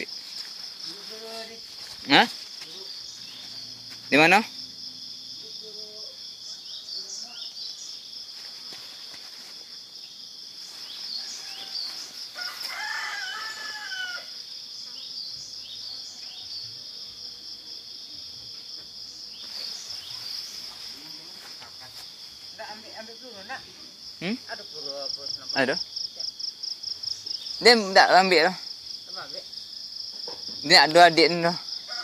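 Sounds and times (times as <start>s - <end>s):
insects chirping: 0.0s - 32.0s
rooster crowing: 11.1s - 14.6s, 31.8s - 32.0s.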